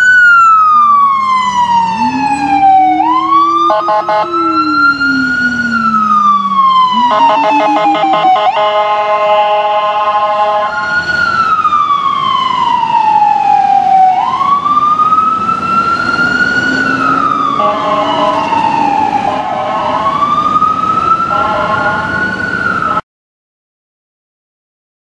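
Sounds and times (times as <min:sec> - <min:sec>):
low-frequency siren tone: 0:00.0 - 0:08.3
siren wailing: 0:00.0 - 0:08.8, 0:10.6 - 0:23.0.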